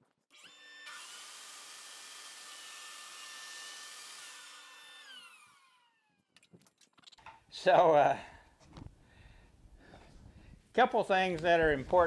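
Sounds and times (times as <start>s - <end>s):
table saw whining: 0.3s - 6.2s.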